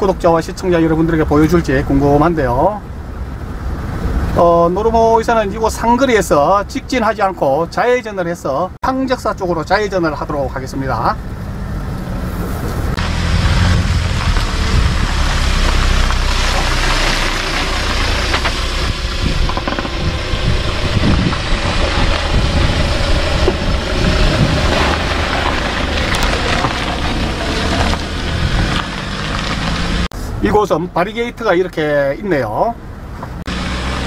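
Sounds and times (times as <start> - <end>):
truck engine running: 11.2 - 30.1
tyres crunching over gravel: 13.0 - 30.1.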